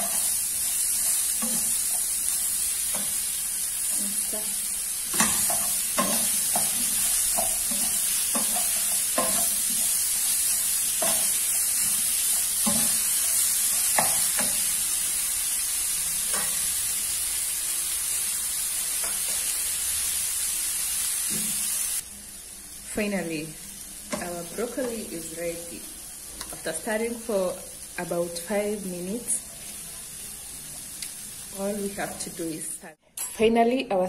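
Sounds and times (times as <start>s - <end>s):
vegetables sizzling in a pan: 0.0s - 33.0s
spatula scraping a pan: 5.1s - 14.8s.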